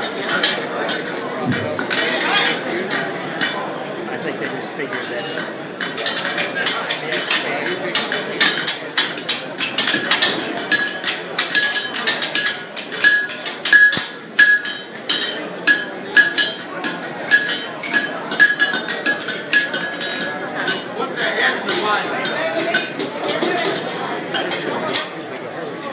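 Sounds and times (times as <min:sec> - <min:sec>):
hammer striking steel on anvil: 0:08.0 - 0:20.9.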